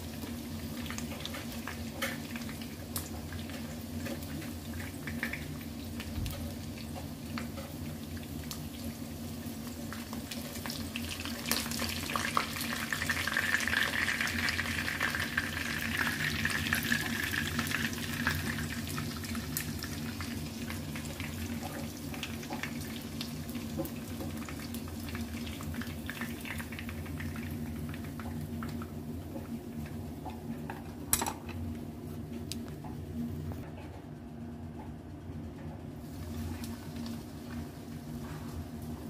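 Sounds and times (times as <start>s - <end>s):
chicken sizzling in oil: 0.0s - 30.0s.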